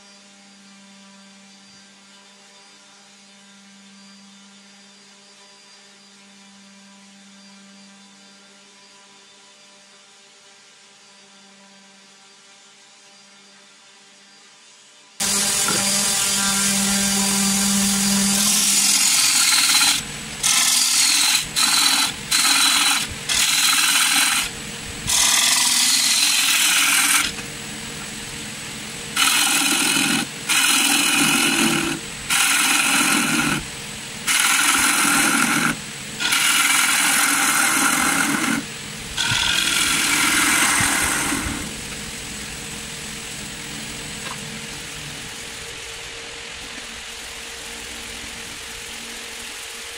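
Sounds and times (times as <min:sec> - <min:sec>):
gouge shaving wood on lathe: 0:15.2 - 0:27.4, 0:29.2 - 0:41.8
wood lathe running: 0:15.2 - 0:42.1.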